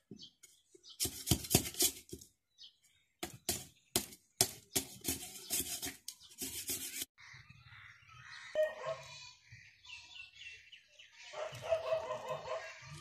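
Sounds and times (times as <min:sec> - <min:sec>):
knife scraping bamboo stick: 0:00.9 - 0:02.2, 0:03.5 - 0:07.2.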